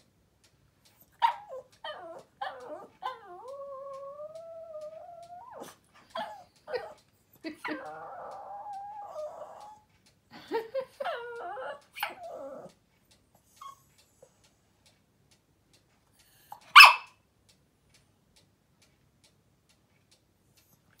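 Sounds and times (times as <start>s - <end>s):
dog barking: 1.2s - 1.6s, 16.7s - 17.2s
small dog whining: 1.2s - 7.0s, 7.6s - 9.9s, 10.9s - 12.8s, 13.5s - 14.3s.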